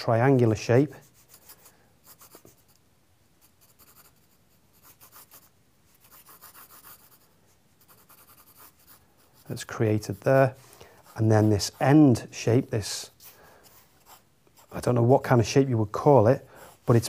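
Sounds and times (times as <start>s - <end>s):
pencil scratching on paper: 1.0s - 2.8s, 3.4s - 15.0s.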